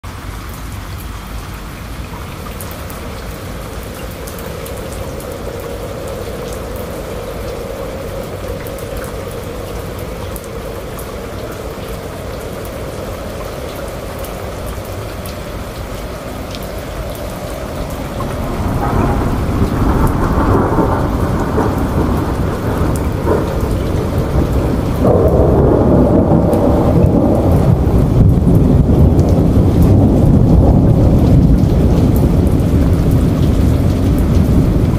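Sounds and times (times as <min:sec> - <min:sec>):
heavy rain pouring: 0:00.0 - 0:34.9
deep rumble: 0:02.4 - 0:34.9.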